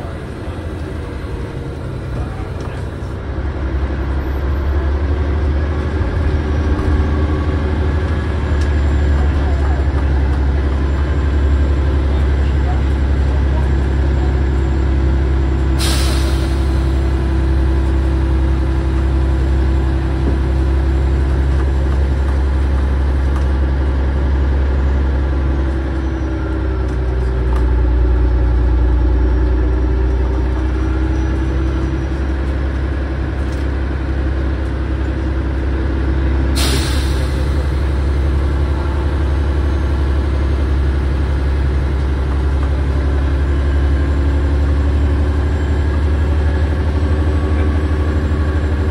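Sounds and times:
bus engine droning: 0:00.0 - 0:48.9
air hissing: 0:15.8 - 0:17.0, 0:36.6 - 0:37.8.

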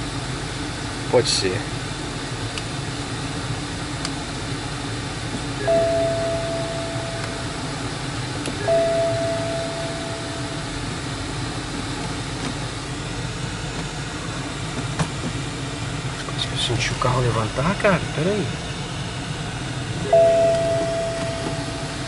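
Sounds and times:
car engine idling: 0:00.0 - 0:22.0
car two-tone warning chime: 0:05.6 - 0:07.8, 0:08.6 - 0:11.0, 0:20.0 - 0:22.0.

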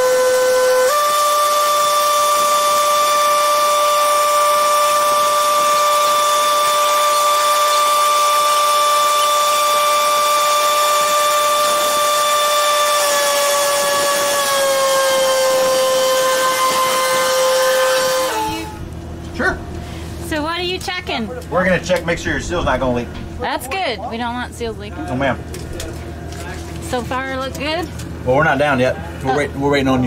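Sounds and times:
hydraulic drive whining: 0:00.0 - 0:20.2.

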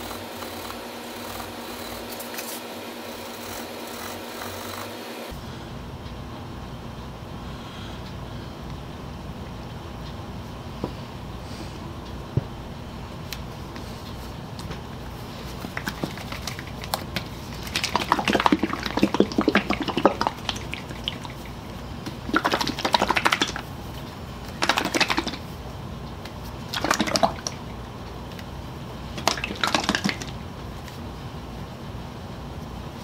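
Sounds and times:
steady low hum: 0:00.0 - 0:33.0
scratchy hand scrubbing: 0:15.3 - 0:23.7, 0:24.5 - 0:25.4.

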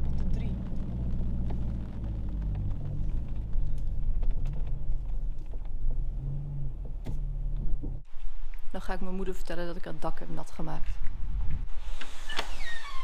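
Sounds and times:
car engine low rumble: 0:00.0 - 0:08.1.

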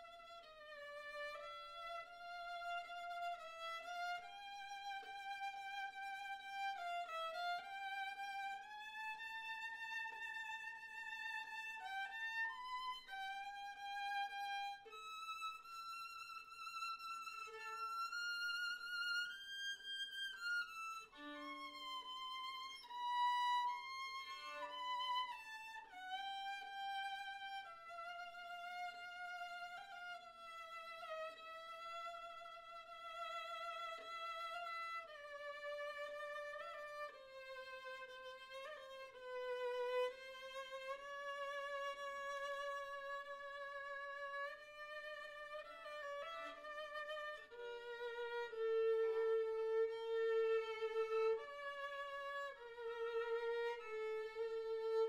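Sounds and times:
bowed violin melody: 0:00.0 - 0:55.0.

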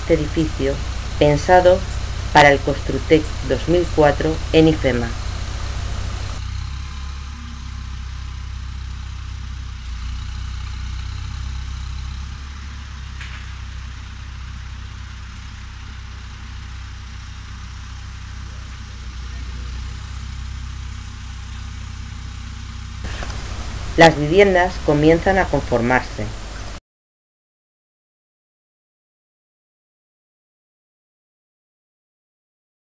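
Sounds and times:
diesel engine rumbling: 0:00.0 - 0:26.8.

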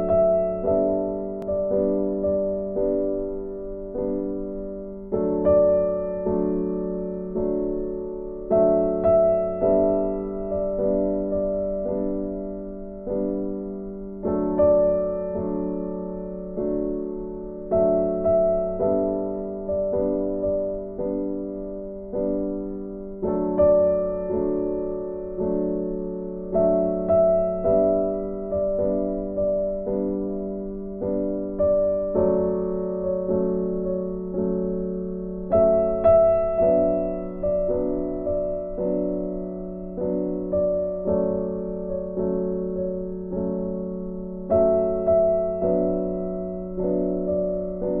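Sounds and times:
gentle piano chords: 0:00.0 - 0:48.0.

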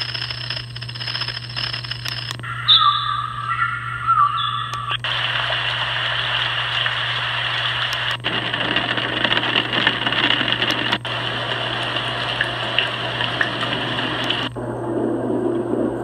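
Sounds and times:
white noise machine water hiss: 0:04.8 - 0:16.0.

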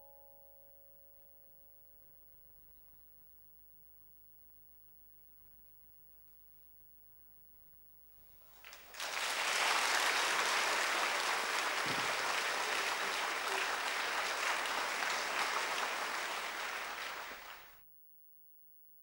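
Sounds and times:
audience applause: 0:08.5 - 0:17.8.

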